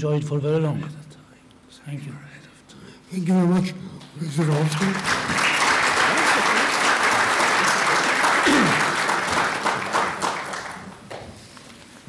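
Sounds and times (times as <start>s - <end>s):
audience applauding: 4.3s - 11.3s.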